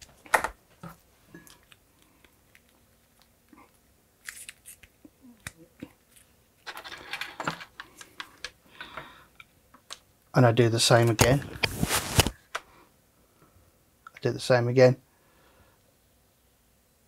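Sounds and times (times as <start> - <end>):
probes rustling and scraping: 11.0 - 12.4.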